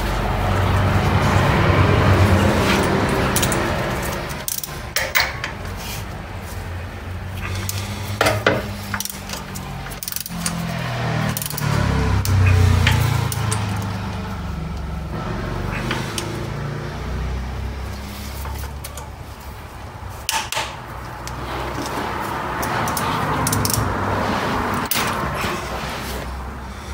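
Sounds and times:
hand tools clinking on metal: 2.4 - 5.8, 7.4 - 14.2, 20.2 - 24.0
torque wrench clicks: 8.7 - 13.9.

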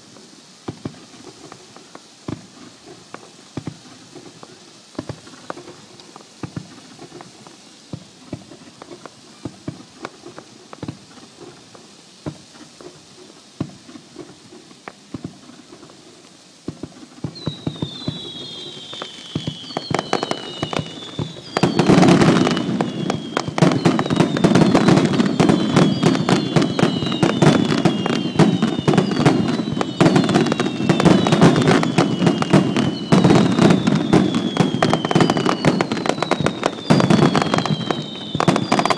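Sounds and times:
firework bangs and crackling: 0.0 - 38.9
firework hiss: 0.0 - 38.9
faint firework pops: 0.6 - 38.9
falling whistles: 17.2 - 38.9.

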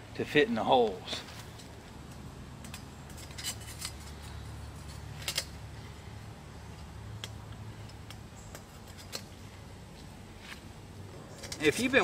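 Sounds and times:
metal grill sheet clinking: 2.6 - 5.5, 11.2 - 12.0.

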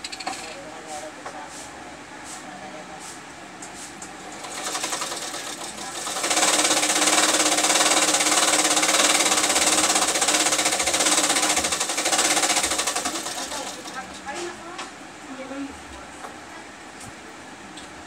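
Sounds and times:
small machine rattling and humming: 0.0 - 0.8, 4.2 - 14.9.

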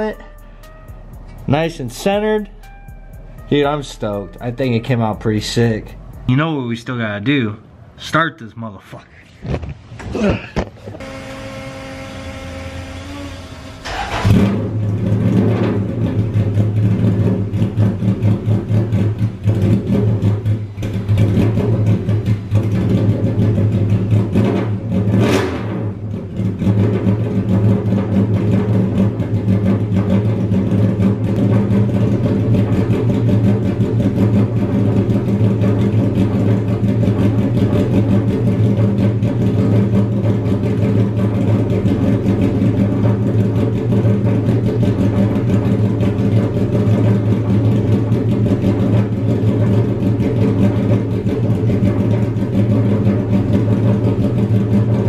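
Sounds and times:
engine revving sweep: 11.0 - 55.0
loud car engine idling: 11.0 - 55.0.

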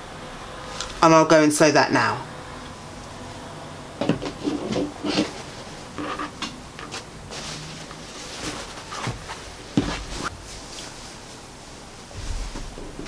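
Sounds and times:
fabric knocks and rustles: 6.8 - 13.0
soft swish of cloth: 7.3 - 13.0.

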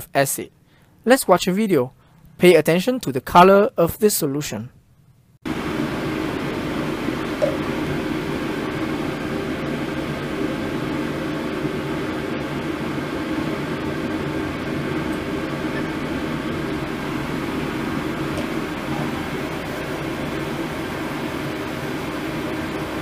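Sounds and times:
fan humming and hissing: 5.5 - 23.0.

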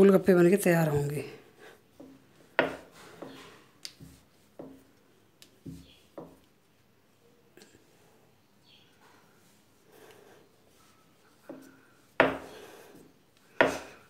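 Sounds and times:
rolling pin knocking on stone: 2.0 - 3.4, 12.2 - 12.5.

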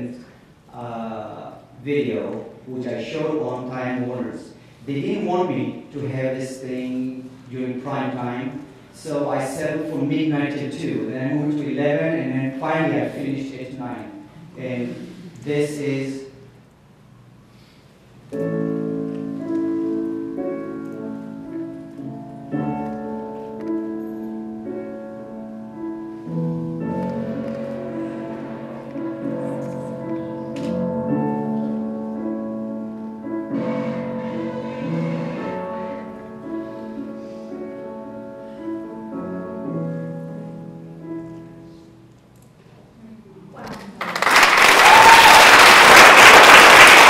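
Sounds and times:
slow piano chords: 0.0 - 43.2
slow instrumental music: 18.2 - 42.4.

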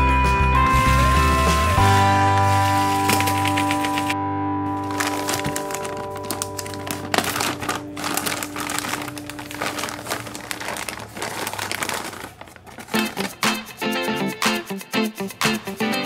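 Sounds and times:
background music: 0.0 - 10.9, 12.8 - 16.0
plastic bag crinkling: 1.8 - 13.8.

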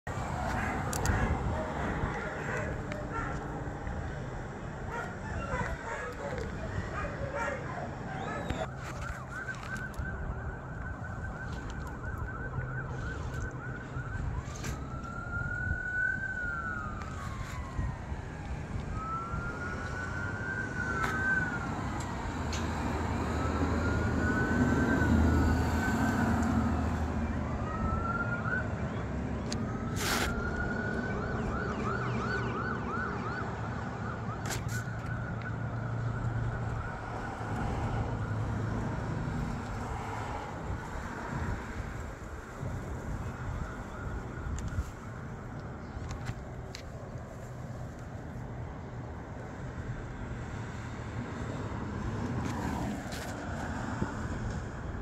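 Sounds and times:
emergency siren yelping and wailing: 0.1 - 55.0.

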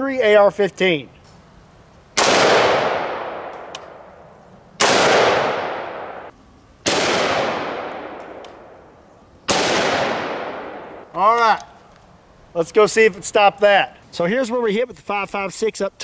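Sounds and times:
rifle shots with echo: 2.2 - 4.2, 4.8 - 11.1.

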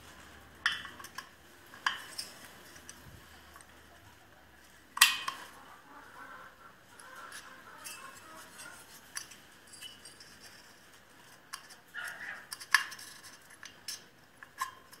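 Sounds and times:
metal tools clinking: 7.8 - 10.7.

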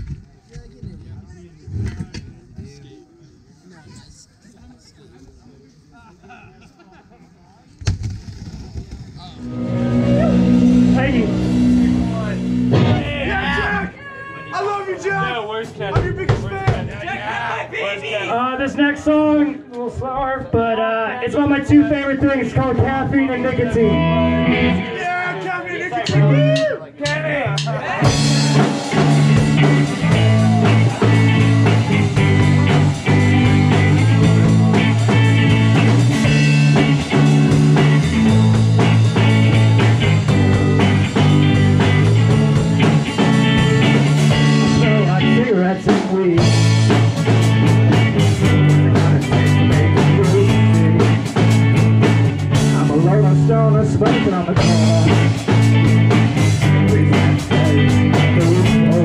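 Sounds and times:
drum kit: 7.8 - 13.9, 15.7 - 17.2, 26.0 - 59.0
live rock band playing: 9.2 - 14.0, 21.6 - 25.0, 26.0 - 59.0
electric guitars: 9.2 - 14.5, 22.4 - 25.0, 27.4 - 59.0.

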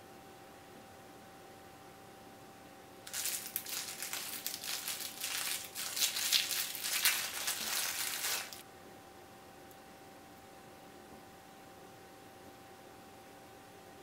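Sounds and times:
plastic wrapper crinkling: 3.1 - 8.6.

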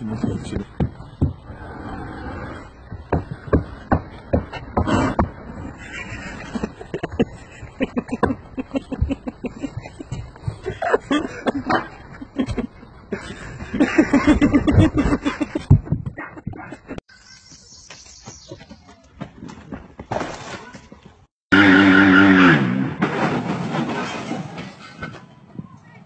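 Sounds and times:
people speaking: 0.0 - 0.7, 24.5 - 26.0
people laughing hard: 5.5 - 17.0.

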